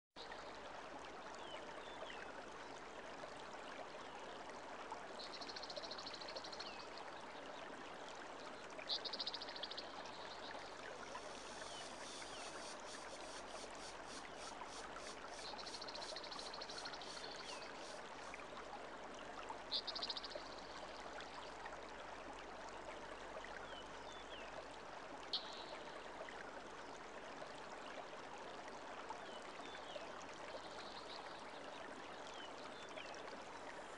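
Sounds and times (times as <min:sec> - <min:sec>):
river water rushing: 0:10.8 - 0:18.4
high chirps and buzzes: 0:11.0 - 0:18.0.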